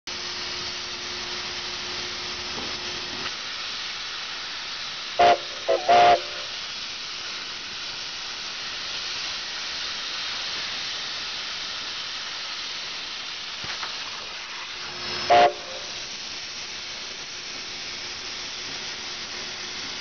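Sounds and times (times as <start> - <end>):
steam locomotive hissing: 0.1 - 20.0
steam whistle toots: 5.2 - 6.6, 14.9 - 16.2.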